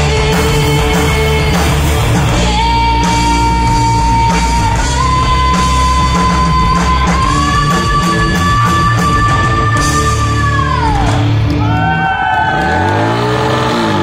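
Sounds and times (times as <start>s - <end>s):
woman singing: 0.0s - 1.8s, 2.4s - 11.1s
live rock band playing: 0.0s - 11.9s.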